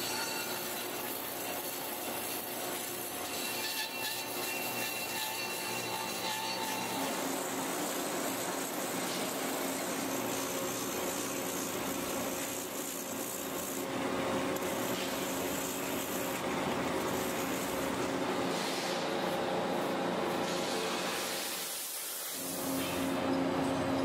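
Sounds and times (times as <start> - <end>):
power buffer grinding rubber: 3.9 - 18.3.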